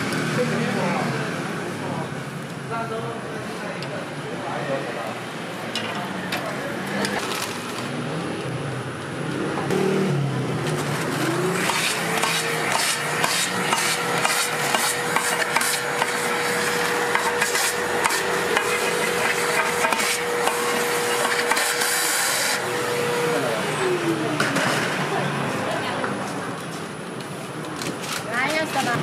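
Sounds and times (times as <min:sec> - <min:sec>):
metal utensils clicking and scraping: 0:10.7 - 0:21.9.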